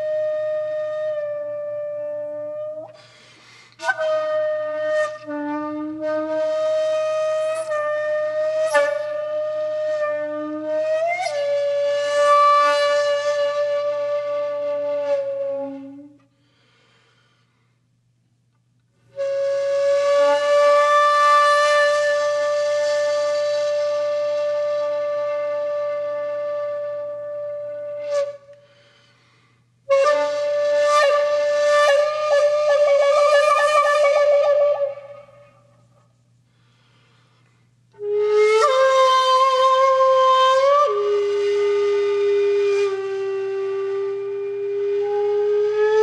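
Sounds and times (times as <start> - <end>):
flute-like wind instrument: 0.0 - 16.3, 19.1 - 29.1, 29.9 - 35.9, 37.9 - 46.0.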